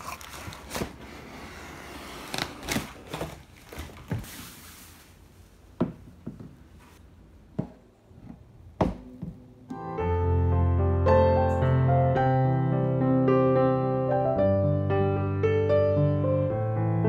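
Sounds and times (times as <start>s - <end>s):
plastic bag crinkling: 0.0s - 1.0s.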